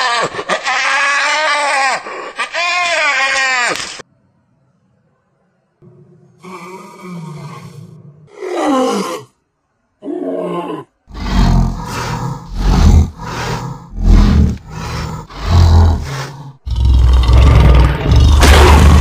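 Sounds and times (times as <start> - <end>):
tiger roars: 6.4 - 9.3, 10.0 - 19.0.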